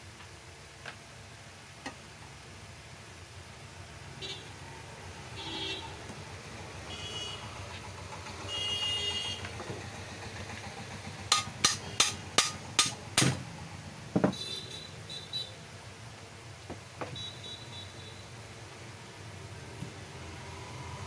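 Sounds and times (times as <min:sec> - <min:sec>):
hammer tapping metal housing: 0:11.3 - 0:13.4.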